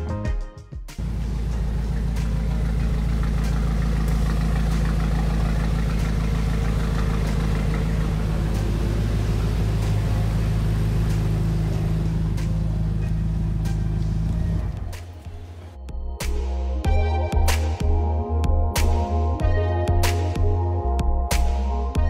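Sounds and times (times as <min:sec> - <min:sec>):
car engine idling: 0:01.0 - 0:15.8.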